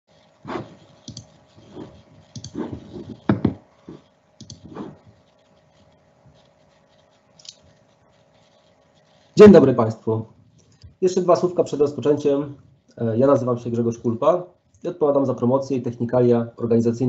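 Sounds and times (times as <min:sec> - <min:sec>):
faint steady hum: 0:00.1 - 0:17.0.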